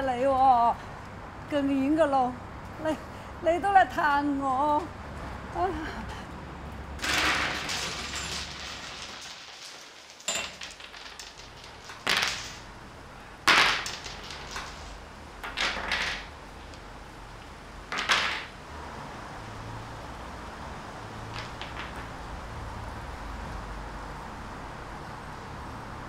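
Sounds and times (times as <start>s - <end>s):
mahjong tiles clacking: 7.0s - 18.6s, 21.2s - 22.2s.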